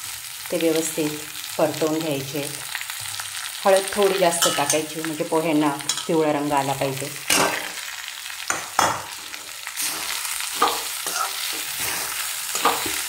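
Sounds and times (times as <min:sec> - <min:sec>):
frying sizzle: 0:00.0 - 0:13.0
spoon scraping metal pan: 0:08.5 - 0:13.0.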